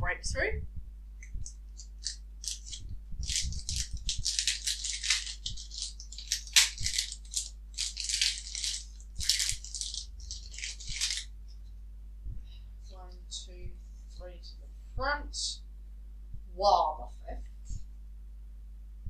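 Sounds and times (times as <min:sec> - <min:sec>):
foil wrapper crinkling and tearing: 0:01.4 - 0:11.3.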